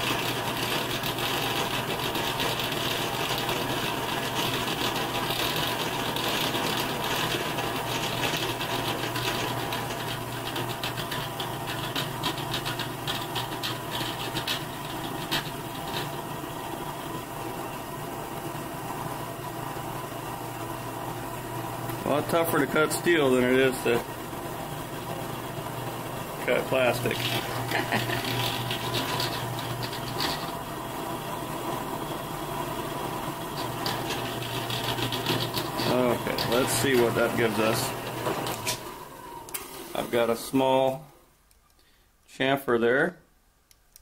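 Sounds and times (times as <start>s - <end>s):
drill press motor hum: 0.0s - 41.3s
drill scraping into steel: 26.4s - 30.7s, 33.5s - 40.4s
irregular ticks: 43.7s - 44.0s.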